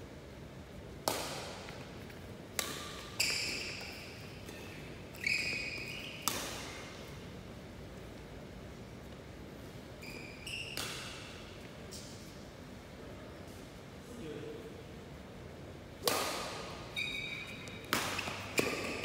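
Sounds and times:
racket hitting shuttlecock: 0:01.0 - 0:07.1, 0:10.6 - 0:12.1, 0:16.0 - 0:16.8, 0:17.7 - 0:19.0
shoes squeaking on court: 0:02.9 - 0:07.2, 0:10.0 - 0:12.1, 0:16.8 - 0:19.0.

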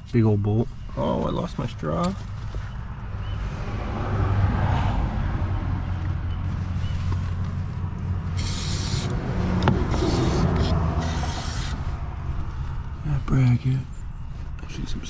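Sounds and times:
steady low hum: 0:05.0 - 0:15.0
aerosol spray can hissing: 0:08.4 - 0:09.2.

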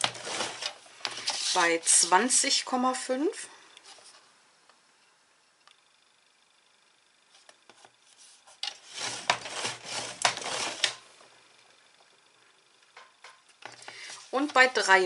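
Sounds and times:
faint paper rustles: 0:00.0 - 0:01.7, 0:07.3 - 0:11.0
scoring tool scraping card: 0:00.0 - 0:01.7, 0:07.7 - 0:11.0.

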